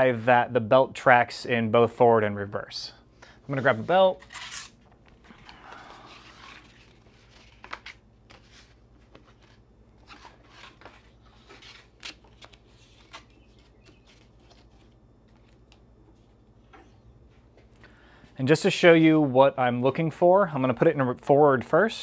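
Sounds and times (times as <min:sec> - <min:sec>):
faint rustling and scrapes: 0:03.5 - 0:16.4.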